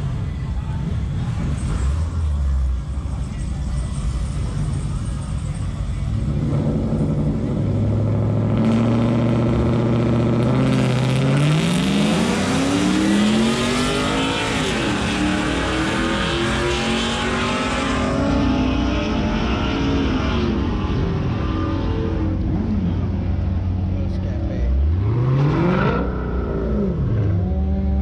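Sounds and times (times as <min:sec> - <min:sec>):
pickup truck engine revving: 0:06.0 - 0:23.7.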